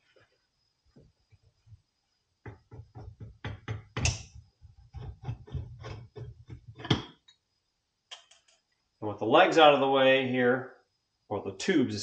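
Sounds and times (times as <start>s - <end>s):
metal fork tubes knocking and clunking: 2.4s - 7.3s.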